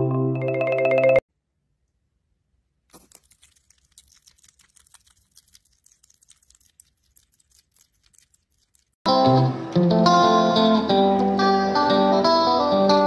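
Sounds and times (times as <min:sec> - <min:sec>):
hedgehog soft clicking and crackling: 0:02.9 - 0:09.0.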